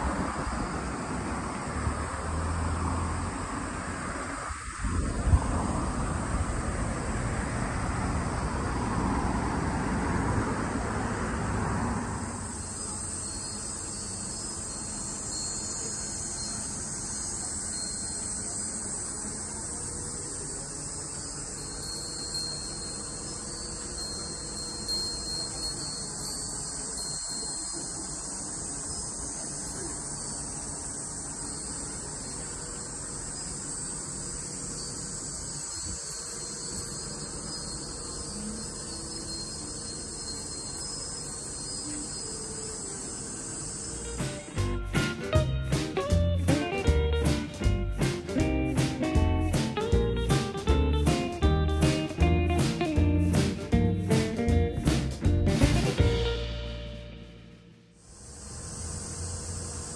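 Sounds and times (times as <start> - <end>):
insects droning in trees: 0.0 - 59.9
wind rushing: 4.1 - 9.4.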